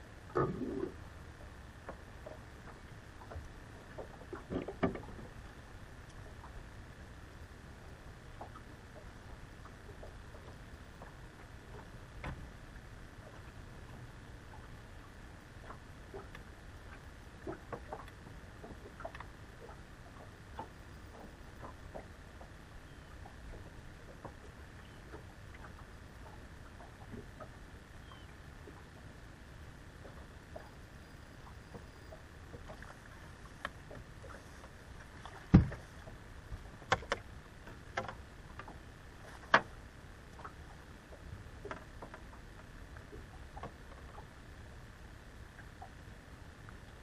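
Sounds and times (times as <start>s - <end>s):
low steady rumble: 0.0s - 47.0s
waves lapping against boat hull: 0.0s - 47.0s
knocks and thumps on boat deck: 4.4s - 5.3s, 35.2s - 35.9s.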